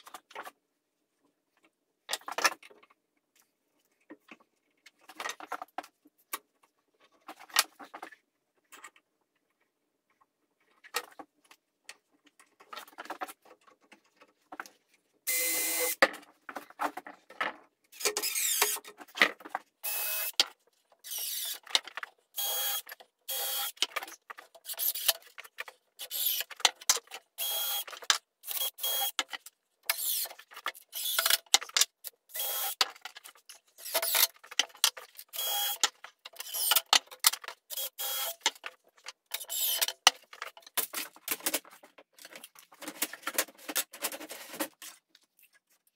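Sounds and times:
tools and wood clattering: 0:16.0 - 0:19.7, 0:38.4 - 0:45.6
cordless drill driving screws: 0:18.2 - 0:18.8, 0:21.1 - 0:21.6, 0:30.0 - 0:30.3, 0:30.9 - 0:31.4, 0:32.3 - 0:32.8, 0:39.4 - 0:39.8.

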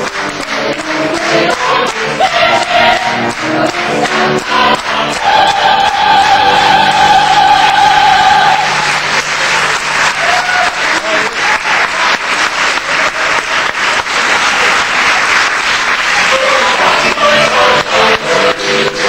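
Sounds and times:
audience applauding: 0:00.0 - 0:19.0
singers holding a note: 0:01.2 - 0:09.1.

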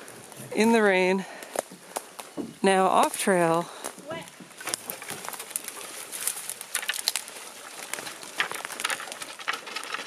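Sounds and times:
twigs and leaves crackling: 0:00.0 - 0:10.0
footsteps through brush: 0:03.7 - 0:09.9
branches brushing past: 0:04.6 - 0:10.0.

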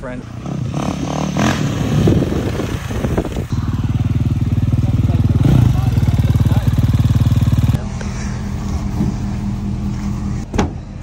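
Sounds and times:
engine idling: 0:03.4 - 0:11.0.

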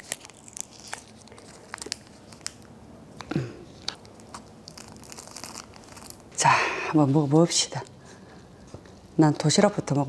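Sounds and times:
plastic sachet tearing and crinkling: 0:00.0 - 0:02.8, 0:03.7 - 0:06.3.

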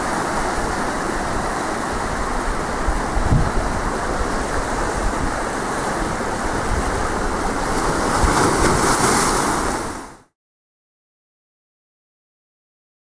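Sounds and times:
wind buffeting microphone: 0:00.0 - 0:09.7
sea waves breaking on rocks: 0:00.0 - 0:10.2.

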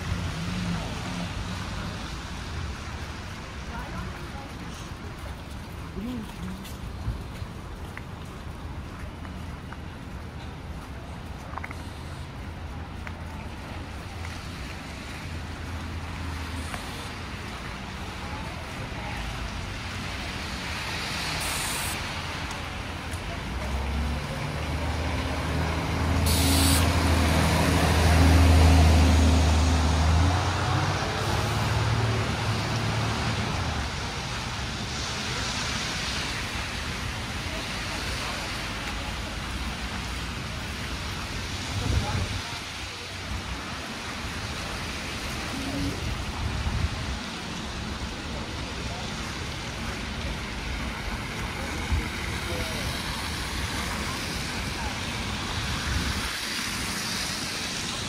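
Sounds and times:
tyres hissing on snowy road: 0:00.0 - 0:07.8, 0:10.2 - 0:58.0
traffic rumble: 0:00.0 - 0:58.0
vehicle engine hum passing: 0:23.4 - 0:34.0.

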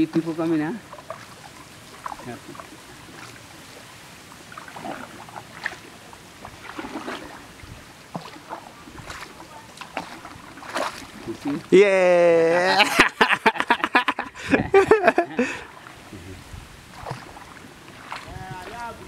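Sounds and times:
small splashes and drips: 0:00.0 - 0:11.7, 0:15.6 - 0:19.0
water lapping around canoe: 0:00.0 - 0:11.8, 0:12.4 - 0:19.0.

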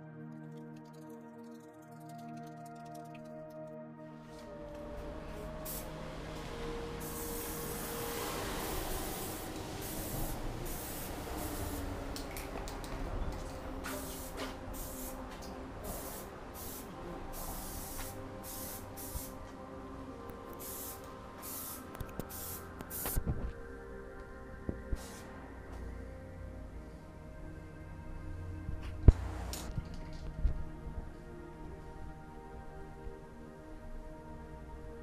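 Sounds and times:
spray-paint can hissing: 0:05.6 - 0:05.9, 0:07.0 - 0:12.8, 0:13.8 - 0:15.2, 0:15.8 - 0:19.4, 0:20.5 - 0:23.2, 0:25.0 - 0:25.3.

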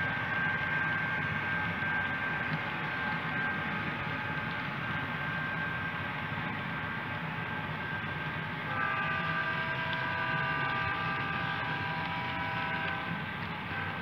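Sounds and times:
steady high ringing tones: 0:00.0 - 0:14.0
model train wheels rumbling: 0:08.6 - 0:14.0.

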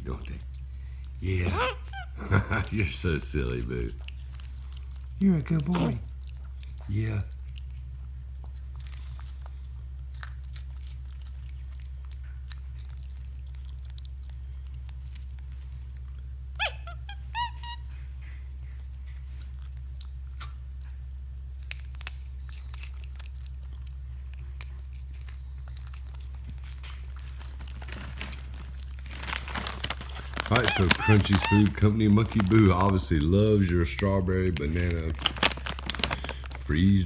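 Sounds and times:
monkey chewing crunches: 0:00.0 - 0:37.0
steady low hum: 0:00.0 - 0:37.0
monkey high rising calls: 0:01.4 - 0:02.4, 0:16.6 - 0:18.4, 0:30.5 - 0:32.0.

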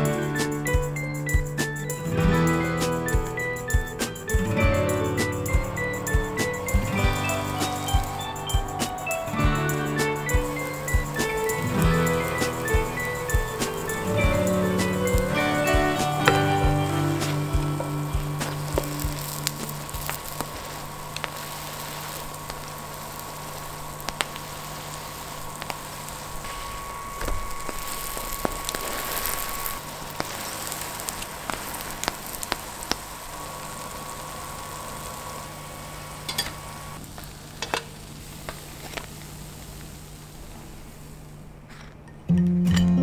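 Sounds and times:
pancakes sizzling in oil: 0:10.4 - 0:41.2.

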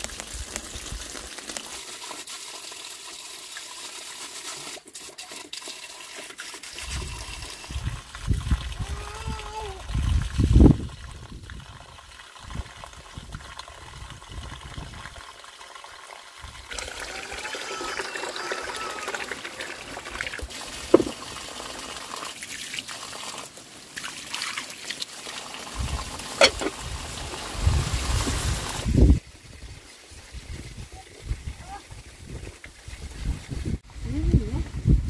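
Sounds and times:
water trickling and splashing: 0:00.0 - 0:35.0
sharp knocks and clicks: 0:20.9 - 0:21.2.

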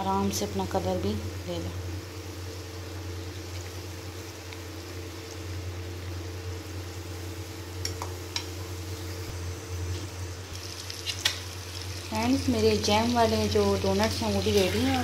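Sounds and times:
low hum: 0:00.0 - 0:15.0
oil bubbling and sizzling: 0:00.0 - 0:15.0
metal spatula clicking on pan: 0:07.8 - 0:08.6.

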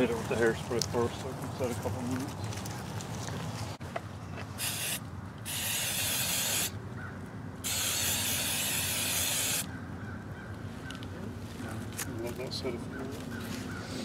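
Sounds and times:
aerosol can spraying: 0:04.6 - 0:06.7, 0:07.6 - 0:09.7.

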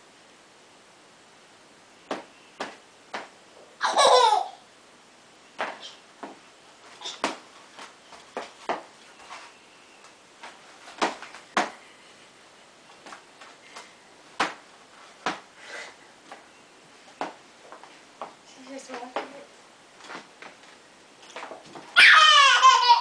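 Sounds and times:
toddler squealing: 0:22.0 - 0:23.0.

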